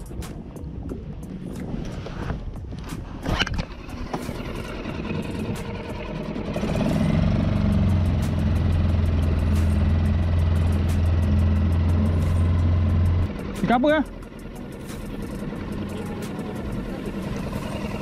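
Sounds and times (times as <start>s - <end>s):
motor humming: 3.6s - 18.0s.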